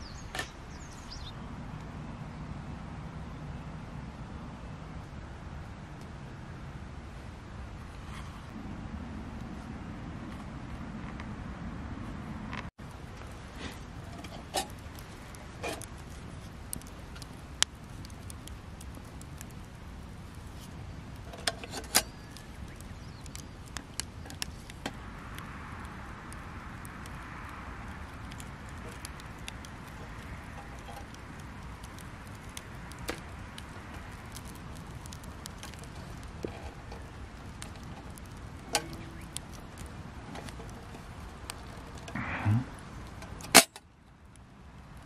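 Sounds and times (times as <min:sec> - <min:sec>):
campfire crackling and popping: 0:00.0 - 0:45.0
low rumble: 0:08.4 - 0:12.7, 0:42.1 - 0:43.2.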